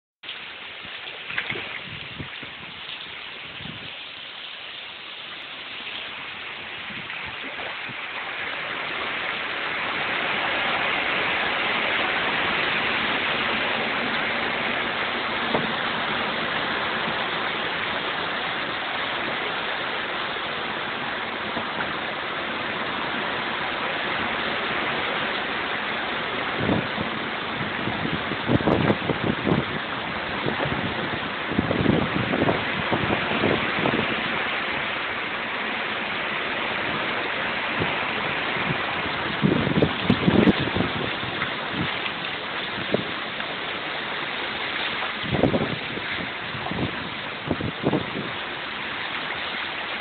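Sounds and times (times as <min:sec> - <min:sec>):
heavy rain pouring: 0:00.2 - 0:50.0.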